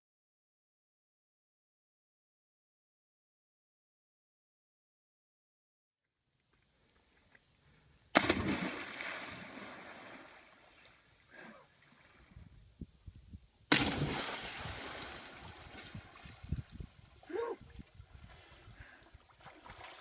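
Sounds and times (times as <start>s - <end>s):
person splashing into river: 8.1s - 10.8s, 13.7s - 16.5s.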